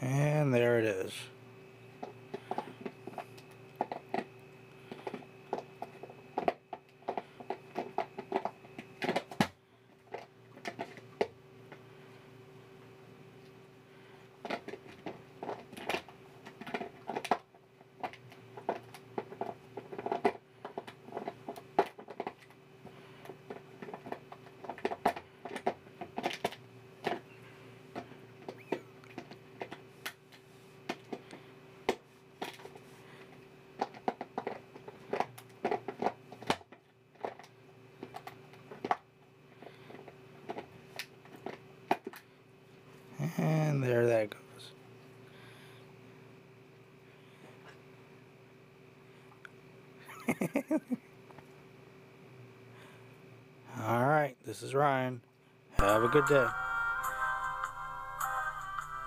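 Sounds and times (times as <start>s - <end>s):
faint steady hum: 0.0s - 59.0s
dog gnawing plastic bottle: 2.0s - 11.3s, 14.4s - 27.2s, 27.9s - 30.2s, 30.9s - 32.8s, 33.8s - 42.3s.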